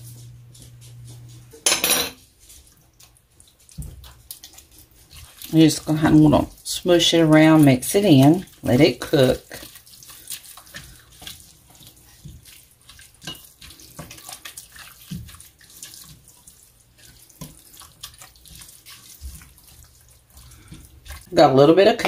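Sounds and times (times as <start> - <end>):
faint steady sizzle: 0.0 - 22.0
spatula scraping a pot: 0.7 - 22.0.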